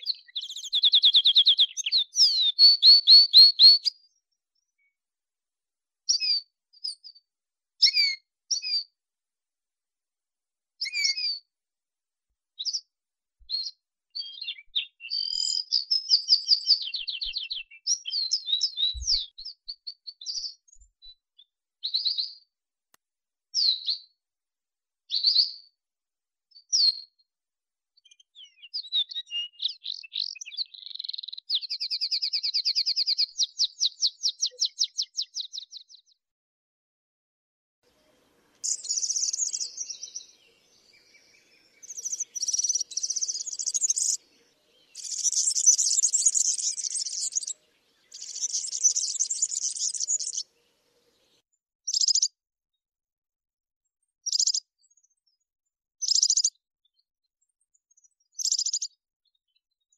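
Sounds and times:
canary singing: 0.0s - 3.9s, 13.6s - 19.3s, 38.4s - 52.3s, 54.3s - 54.6s.

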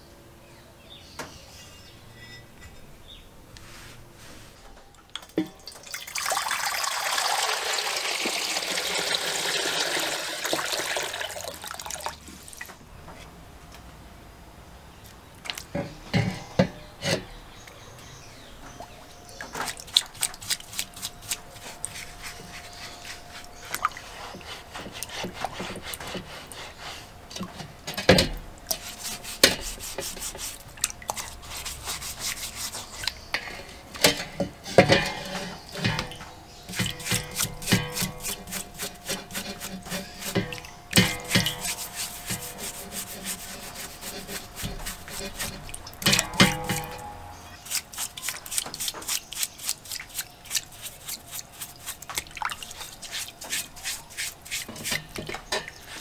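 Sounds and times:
brush scrubbing metal in water: 19.6s - 56.0s.

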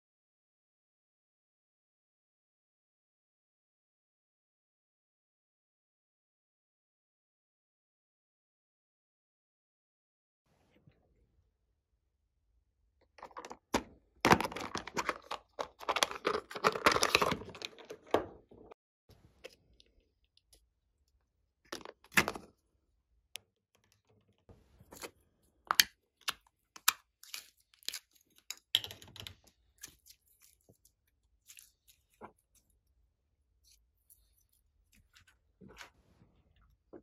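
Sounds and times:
plastic crackling and scraping: 13.1s - 19.8s.

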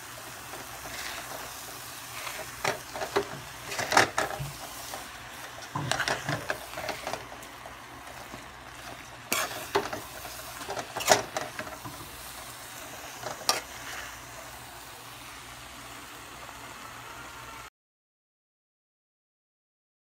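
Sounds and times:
utensil scraping pan: 0.0s - 14.3s
fried rice sizzling in a pan: 0.0s - 17.7s.

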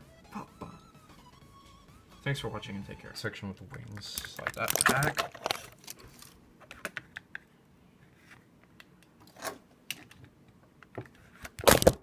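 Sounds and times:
plastic model kit handling: 4.1s - 7.0s.

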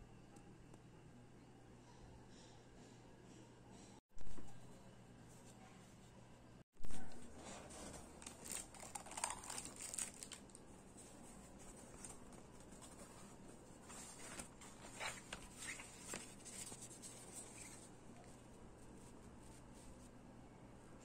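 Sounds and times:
packaging rustling and crinkling: 7.2s - 17.9s.

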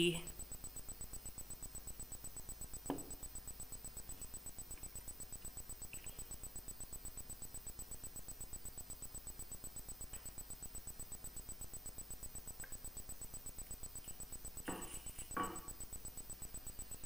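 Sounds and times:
low pulsing background noise: 0.0s - 17.0s
thin high whine: 14.0s - 17.0s
short knock: 14.7s - 15.7s.

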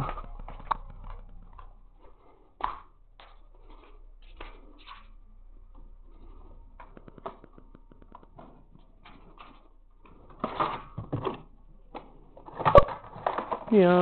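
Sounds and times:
light footsteps: 0.0s - 10.3s.

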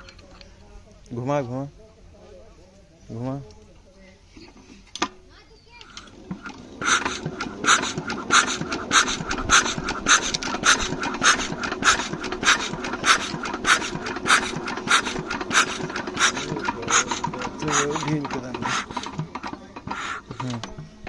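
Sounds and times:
diesel engine cranking without firing: 5.8s - 21.0s.

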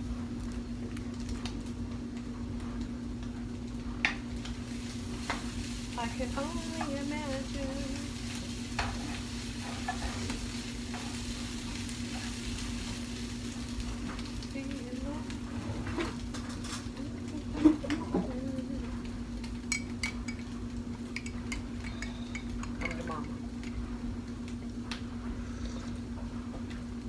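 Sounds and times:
steady low hum: 0.0s - 27.0s
food sizzling in a pan: 3.5s - 26.2s.

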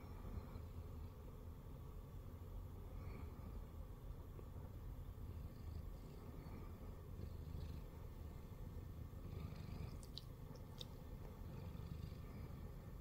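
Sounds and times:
cat purring: 4.4s - 13.0s.

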